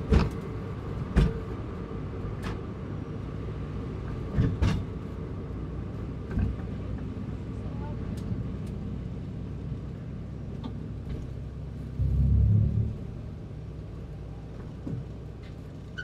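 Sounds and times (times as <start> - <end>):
car engine low rumble: 5.0 - 16.0.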